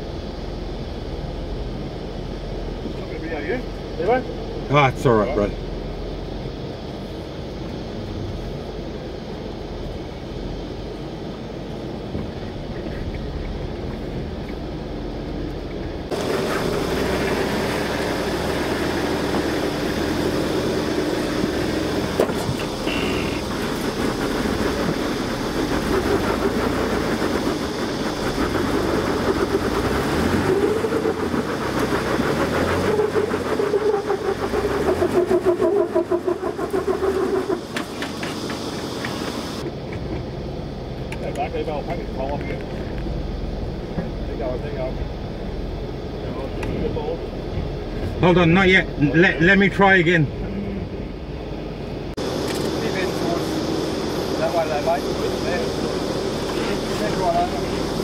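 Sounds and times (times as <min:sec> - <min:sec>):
engine revving under load: 0:15.8 - 0:39.7, 0:50.0 - 0:58.0.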